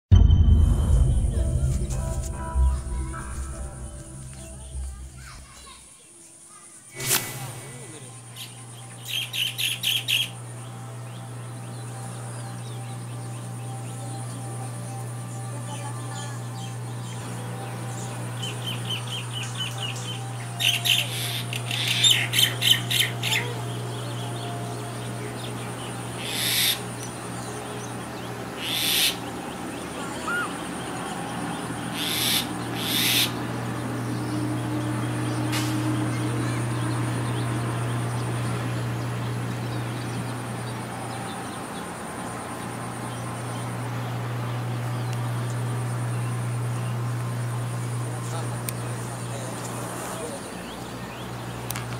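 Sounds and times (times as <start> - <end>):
steady low hum: 0.1 - 51.9
mongoose chirping and chattering: 26.2 - 26.8, 28.6 - 30.8, 31.8 - 33.4.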